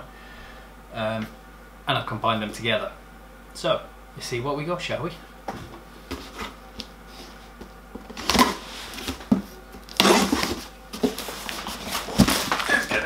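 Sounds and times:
cardboard tearing and rustling: 8.1s - 13.0s
box cutter slitting packing tape: 9.9s - 10.6s.

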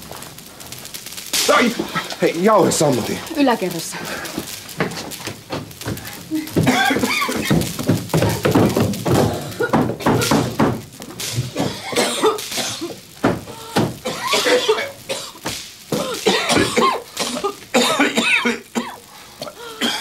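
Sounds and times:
people coughing and gasping: 1.5s - 2.8s, 5.9s - 10.7s, 11.4s - 20.0s.

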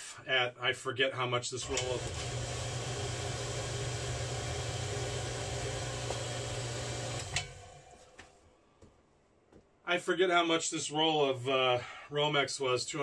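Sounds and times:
machine humming and hissing: 1.6s - 8.2s.

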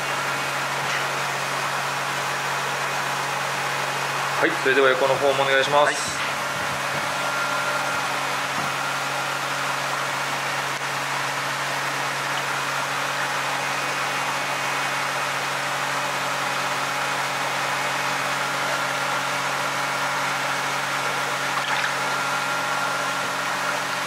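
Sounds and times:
machinery hum and hiss: 0.0s - 24.0s
water sloshing: 21.4s - 22.0s.

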